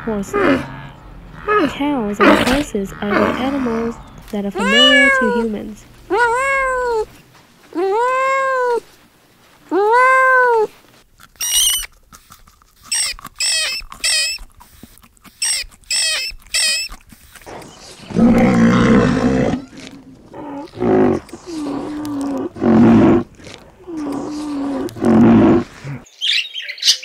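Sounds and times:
kitten meowing: 4.6 - 5.4, 6.1 - 7.1
high-pitched squeaky calls: 11.4 - 12.0, 12.8 - 19.8
loud rough animal sound: 17.4 - 26.1.

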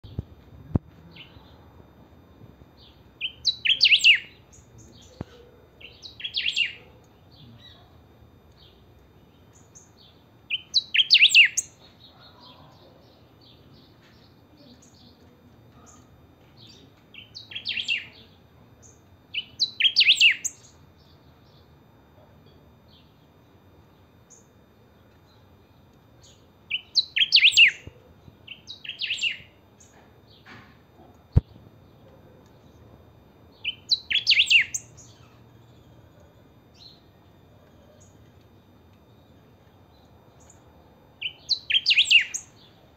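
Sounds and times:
bird singing song phrases: 1.0 - 1.7, 2.8 - 21.8, 23.9 - 30.5, 33.5 - 38.3, 41.2 - 42.9
soft bird chirps: 2.8 - 21.7, 26.2 - 30.5, 33.6 - 38.3, 39.1 - 42.8.

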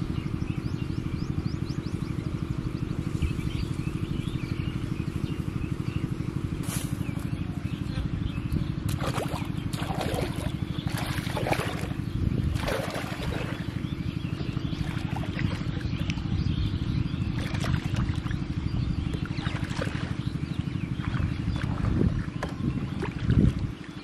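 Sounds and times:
small engine chugging: 0.0 - 24.0
water sloshing and splashing: 8.9 - 16.4, 17.2 - 24.0.

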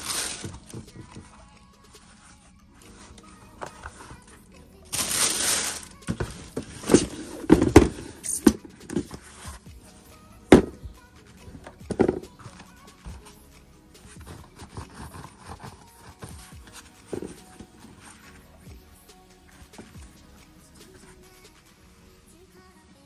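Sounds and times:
packing tissue rustling: 0.0 - 0.9, 4.9 - 8.0.

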